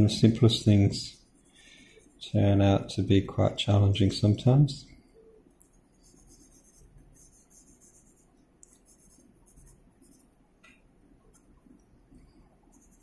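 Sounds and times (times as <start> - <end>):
pencil scratching on paper: 1.0 - 2.3, 5.9 - 10.3, 12.7 - 13.0.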